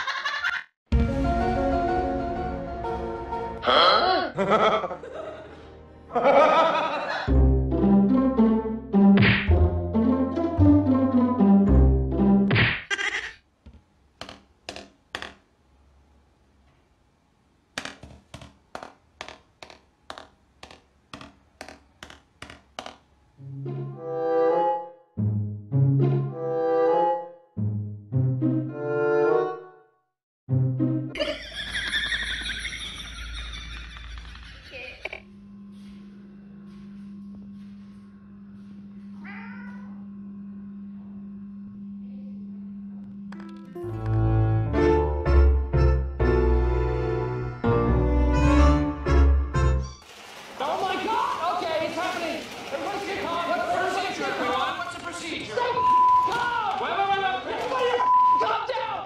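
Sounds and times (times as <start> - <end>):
cat meowing: 39.2 - 40.0
steady low hum: 39.8 - 43.8.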